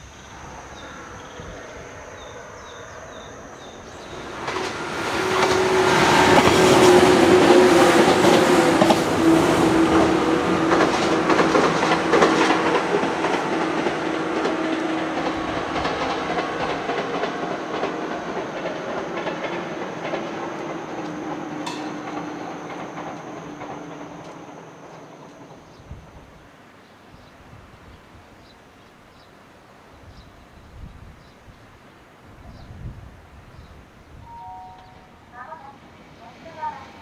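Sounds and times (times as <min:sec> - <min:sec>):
train motor hum: 0:03.9 - 0:18.6
train wheels clattering on rails: 0:03.9 - 0:26.4.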